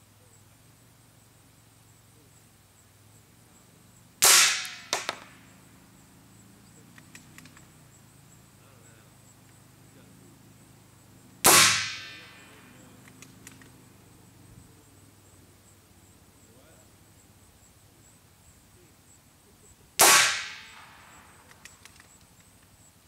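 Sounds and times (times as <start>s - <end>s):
suppressed rifle shots: 4.2s - 5.4s, 11.4s - 13.8s, 20.0s - 22.0s
short clicks: 6.9s - 7.7s, 13.0s - 13.8s, 21.4s - 22.7s.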